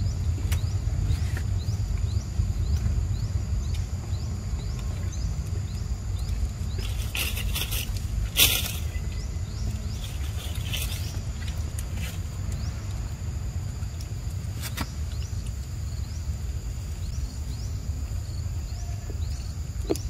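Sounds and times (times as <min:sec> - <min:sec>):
high insect drone: 0:00.0 - 0:20.0
low steady rumble: 0:00.0 - 0:20.0
rustling scrapes: 0:06.7 - 0:09.1, 0:09.9 - 0:12.3.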